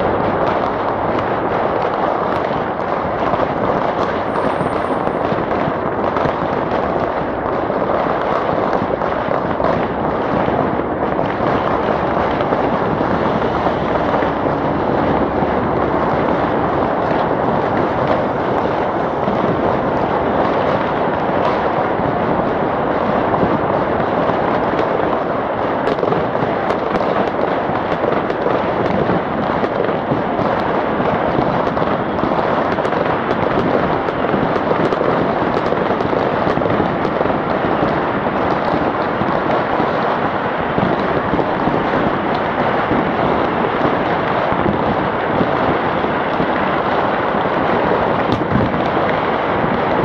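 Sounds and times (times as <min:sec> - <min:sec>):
fireworks crackling and banging: 0:00.0 - 0:50.0.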